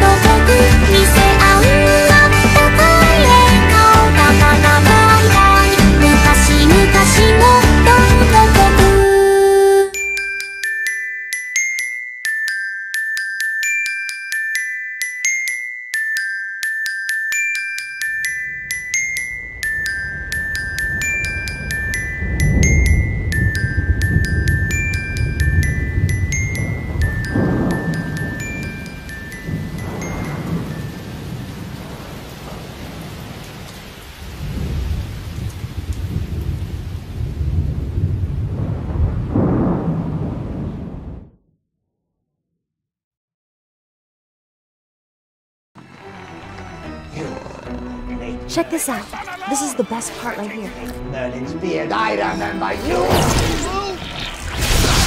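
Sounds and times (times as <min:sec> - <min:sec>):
bell-like glockenspiel melody: 0:09.8 - 0:31.7, 0:51.9 - 0:53.0.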